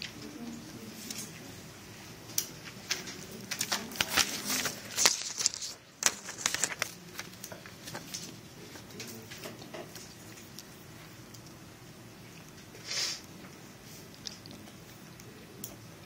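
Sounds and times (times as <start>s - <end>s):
pencil clicks and scratches: 2.3s - 11.6s
paper rustling: 2.5s - 10.2s.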